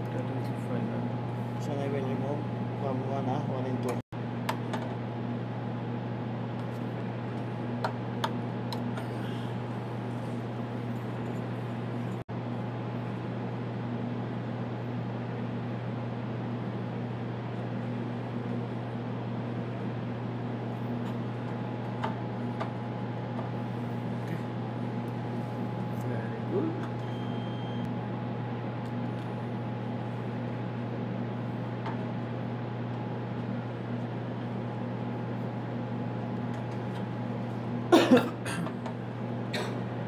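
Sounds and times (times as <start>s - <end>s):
cooling fans humming: 0.0s - 40.0s
faint steady whine: 21.6s - 30.6s.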